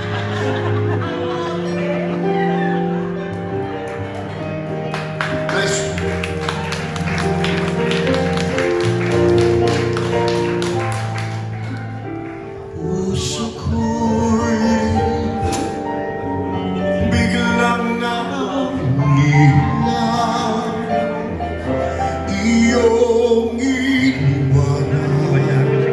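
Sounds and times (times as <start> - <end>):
keyboard chords: 0.0 - 25.9
man singing into a microphone: 12.7 - 25.9.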